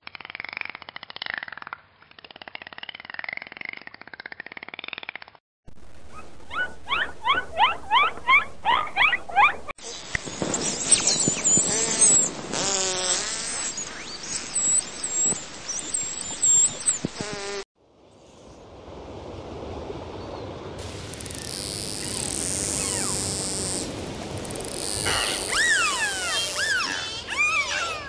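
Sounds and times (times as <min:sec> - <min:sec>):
dolphin whistles: 0:06.5 - 0:12.3, 0:13.0 - 0:17.0, 0:22.0 - 0:23.7, 0:24.8 - 0:28.0
dolphin buzzing pulsed calls: 0:10.7 - 0:17.6, 0:21.1 - 0:28.0
water hiss: 0:20.8 - 0:27.8
dolphin clicking: 0:21.2 - 0:28.0.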